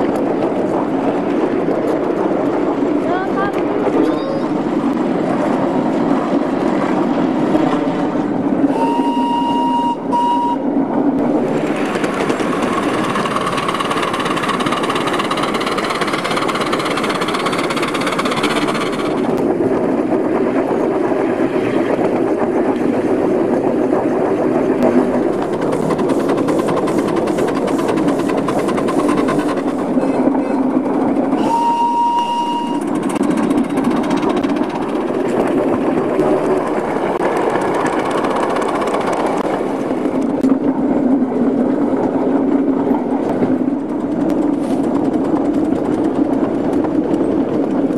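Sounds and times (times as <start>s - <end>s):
miniature steam locomotive running: 0.0s - 47.9s
steam whistle blasts: 8.7s - 10.7s, 31.4s - 32.9s.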